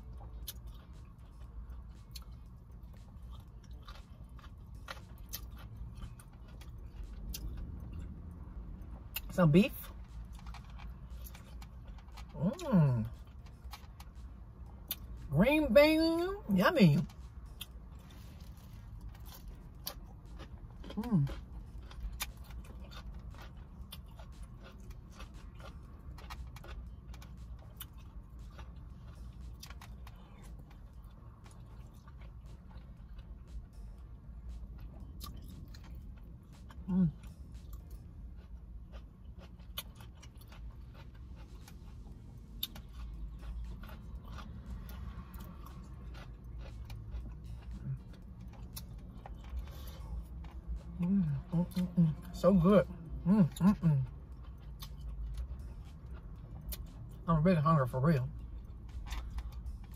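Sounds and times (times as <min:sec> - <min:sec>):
close chewing: 0:00.0 - 0:15.3, 0:17.0 - 0:57.4
low steady hum: 0:00.0 - 0:59.9.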